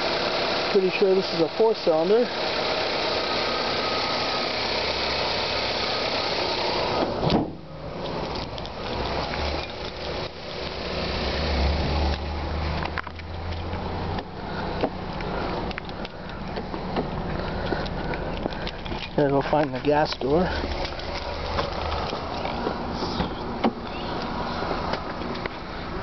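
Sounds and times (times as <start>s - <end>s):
car engine idling: 0.0s - 26.0s
scattered clicks and handling noise: 8.0s - 10.8s, 12.1s - 22.8s, 24.9s - 25.6s.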